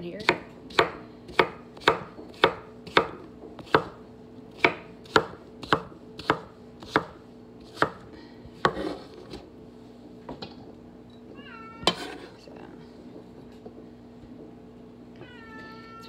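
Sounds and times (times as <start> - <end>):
knife chopping on wooden board: 0.2 - 4.0, 4.6 - 9.4.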